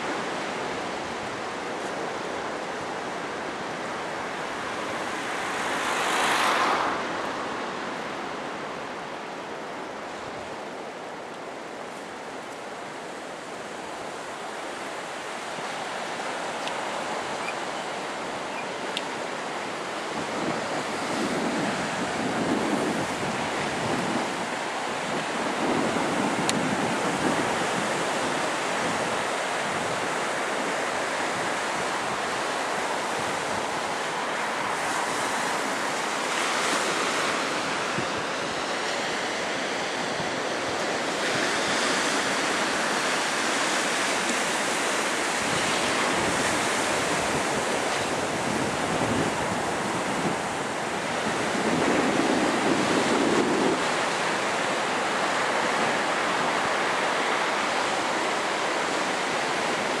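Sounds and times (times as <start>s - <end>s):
surf breaking on a beach: 0.0s - 60.0s
wind on microphone: 16.8s - 60.0s.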